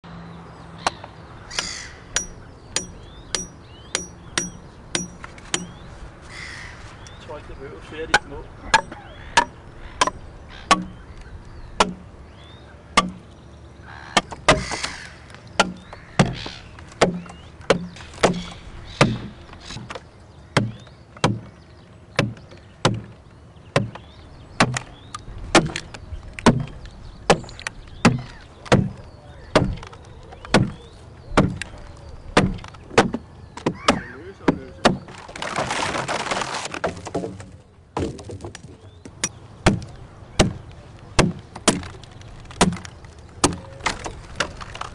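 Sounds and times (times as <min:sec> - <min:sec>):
hammer knocking wedges into log: 0:01.6 - 0:05.8, 0:08.0 - 0:11.0, 0:11.8 - 0:12.0, 0:13.0 - 0:13.2, 0:14.2 - 0:15.0, 0:15.6 - 0:16.4, 0:17.0 - 0:20.0, 0:20.6 - 0:21.6, 0:22.2 - 0:23.1, 0:23.7 - 0:24.9, 0:25.5 - 0:31.7, 0:32.4 - 0:35.2, 0:36.7 - 0:40.6, 0:41.2 - 0:44.8.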